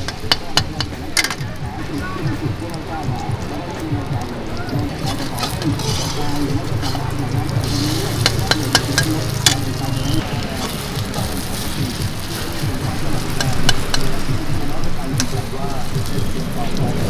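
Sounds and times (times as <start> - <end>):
omelet sizzling in hot oil: 0.0 - 17.0
metal spatula scraping wok: 4.8 - 17.0.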